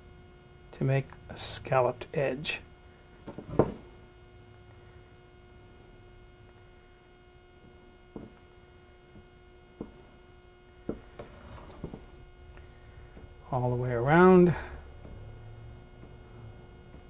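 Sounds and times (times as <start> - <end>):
faint steady hum: 0.0 - 17.0
knocks on wooden tabletop: 3.3 - 3.8.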